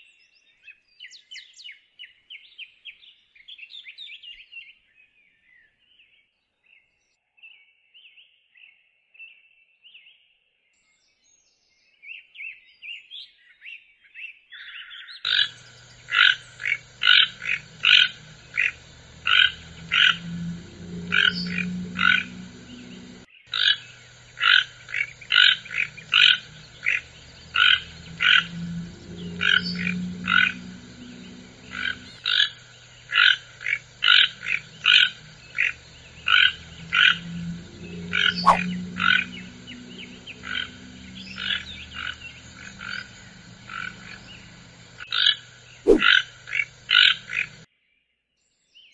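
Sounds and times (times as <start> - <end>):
faint bird chirps: 15.0 - 47.6
toucan calling: 38.0 - 44.6, 45.9 - 46.1.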